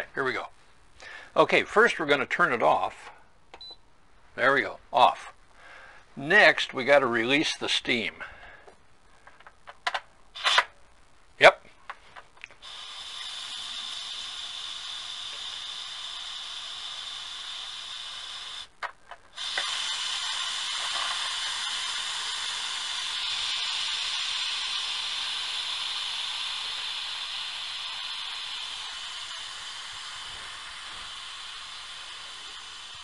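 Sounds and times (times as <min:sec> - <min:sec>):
pressure cooker steam hissing: 0:10.4 - 0:10.7, 0:12.5 - 0:33.0
valve clicks: 0:11.9 - 0:33.0.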